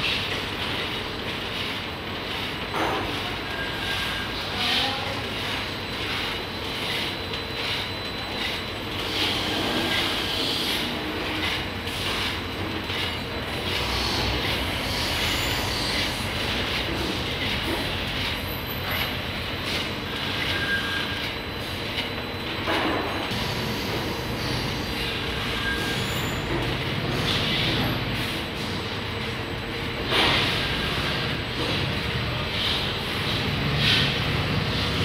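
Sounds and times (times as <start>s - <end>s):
snacks rattling in rotating steel drum: 0.0s - 22.0s.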